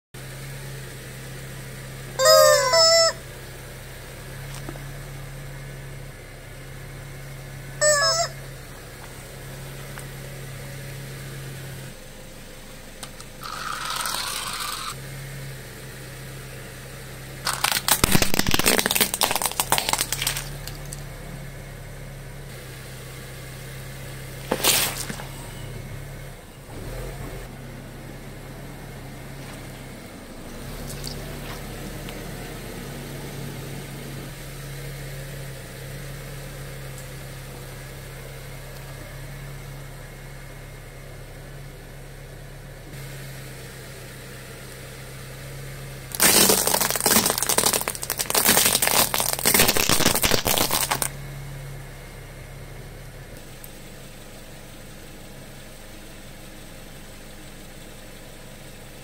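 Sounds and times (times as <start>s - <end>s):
car engine idling: 0.0s - 59.0s
tyre crushing objects on concrete: 17.5s - 21.0s, 24.4s - 25.4s, 46.1s - 51.1s.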